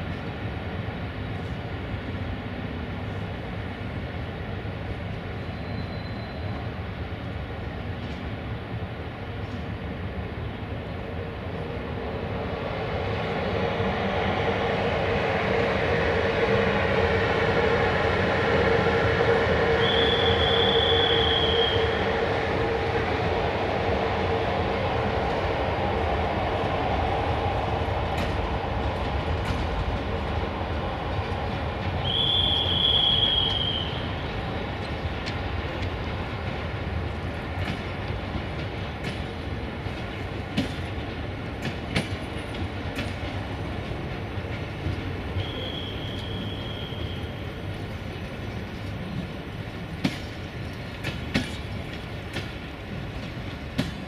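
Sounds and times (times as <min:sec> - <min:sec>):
train rumbling: 0:00.0 - 0:54.0
high squeal: 0:05.5 - 0:06.6, 0:19.7 - 0:22.1, 0:32.0 - 0:34.1, 0:45.4 - 0:47.4
wheels clicking over rail joints: 0:34.8 - 0:46.5, 0:47.6 - 0:54.0.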